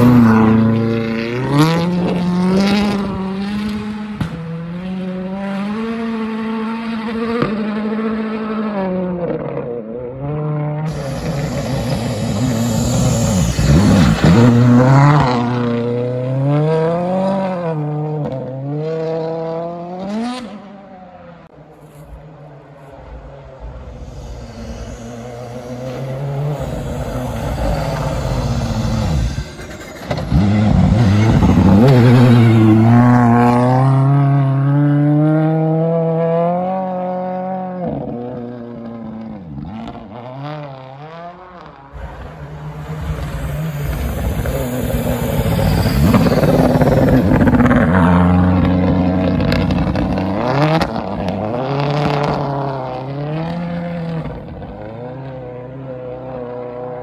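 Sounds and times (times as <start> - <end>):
rally car engine revving: 0.0 - 57.0.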